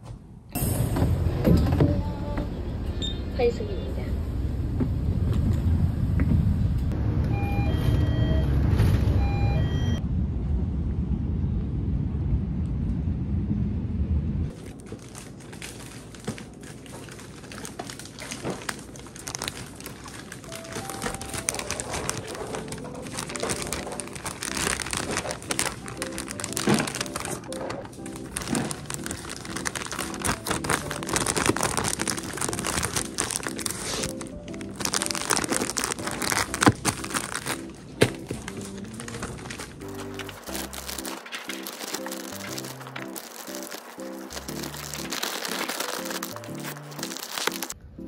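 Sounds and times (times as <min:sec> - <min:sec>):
vehicle interior rumble: 0:00.8 - 0:15.2
beeping tones: 0:07.3 - 0:10.0
crinkling of small objects: 0:14.5 - 0:47.8.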